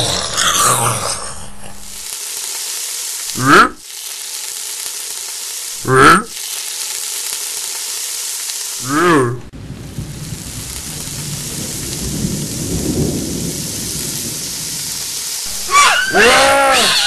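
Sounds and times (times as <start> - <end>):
creature-like cries: 0.0 - 1.8, 15.5 - 17.0
loud growl: 0.0 - 1.9, 15.5 - 17.0
steady sizzling hiss: 0.0 - 17.0.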